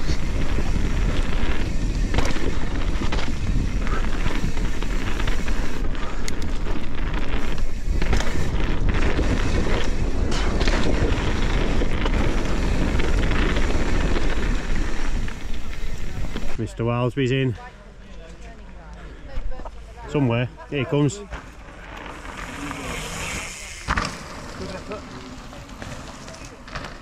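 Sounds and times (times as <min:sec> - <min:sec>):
bike tyre and frame rattle: 0:00.0 - 0:16.6, 0:21.0 - 0:27.0
wind rumble on microphone: 0:00.0 - 0:16.6.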